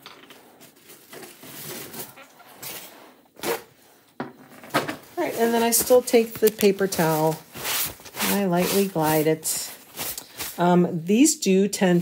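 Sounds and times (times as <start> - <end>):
paper towel rustling: 5.1 - 10.7.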